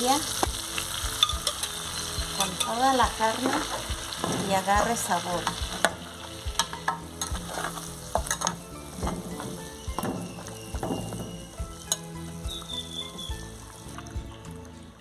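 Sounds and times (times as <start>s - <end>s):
pork sizzling in fat: 0.0s - 15.0s
metal spatula scraping a pot: 6.6s - 13.3s.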